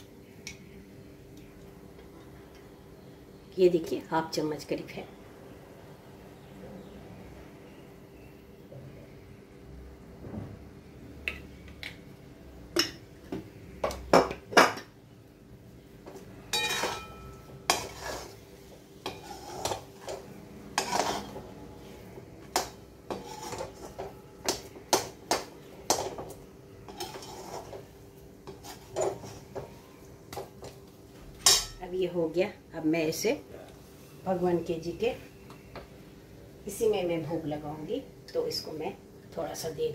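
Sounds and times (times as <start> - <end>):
metal spoon scraping a metal pan: 16.5 - 24.2, 24.9 - 29.6.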